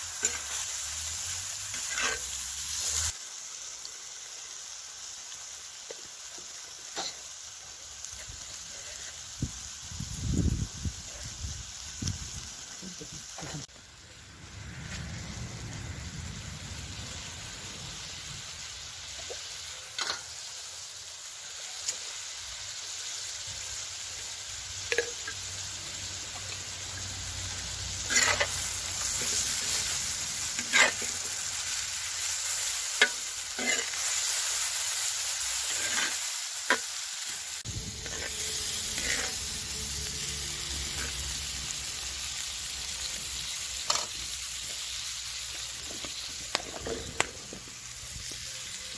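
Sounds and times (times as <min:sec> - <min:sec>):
food sizzling on griddle: 0:00.0 - 0:48.9
metal skimmer scraping iron: 0:37.7 - 0:41.2.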